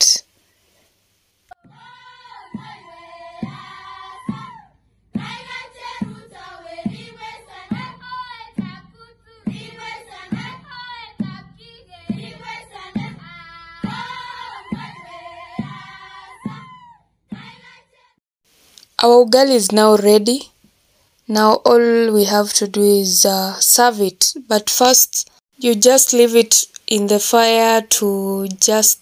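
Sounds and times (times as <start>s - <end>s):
song with vocals and drum beat: 1.6s - 4.6s, 9.5s - 16.7s.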